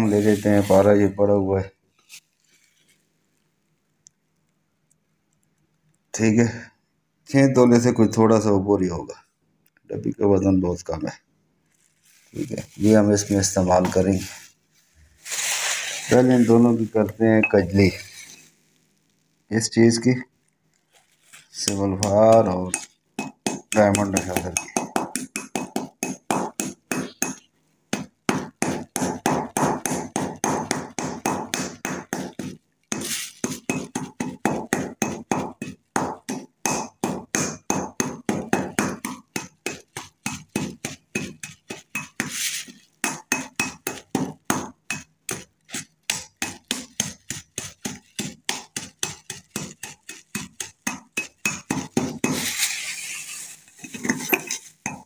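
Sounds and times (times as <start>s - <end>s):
pestle grinding in mortar: 21.6s - 55.0s.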